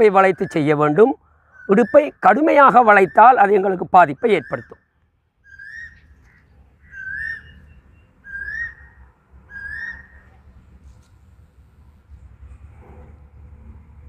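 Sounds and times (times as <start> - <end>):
high whistled call: 4.2 - 10.4.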